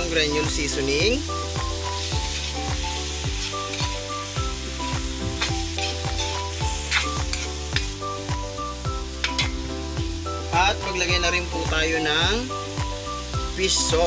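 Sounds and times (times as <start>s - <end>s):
background music with a beat: 0.0s - 14.0s
meat sizzling in a wok: 0.0s - 14.0s
metal spatula scraping a pan: 3.4s - 4.1s, 5.4s - 8.0s, 9.2s - 9.7s.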